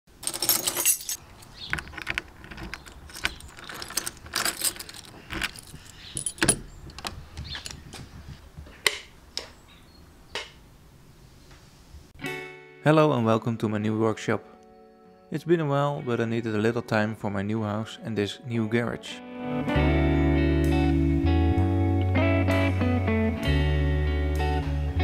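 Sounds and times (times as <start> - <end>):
keys jangling: 0.2 - 7.8
key clicking in door lock: 1.4 - 7.8.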